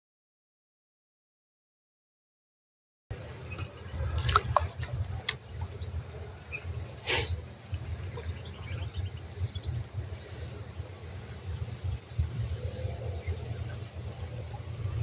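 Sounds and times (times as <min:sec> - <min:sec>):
wind rumble on microphone: 0:03.2 - 0:15.0.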